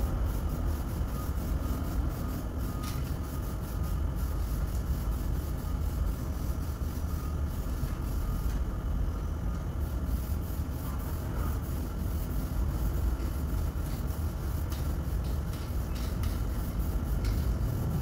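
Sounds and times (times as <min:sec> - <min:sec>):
low machine rumble: 0:15.8 - 0:18.0.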